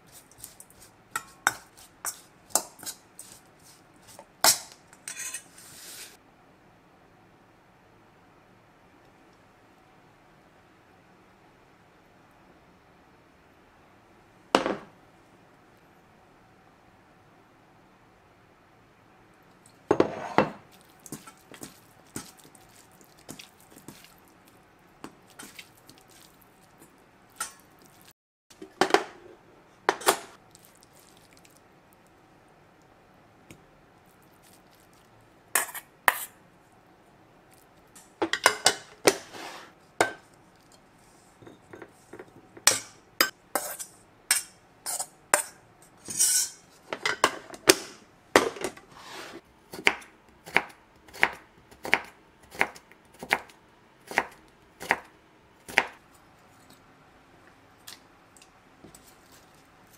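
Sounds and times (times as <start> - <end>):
kitchenware clinking and knocking: 14.6 - 14.9, 38.2 - 39.1.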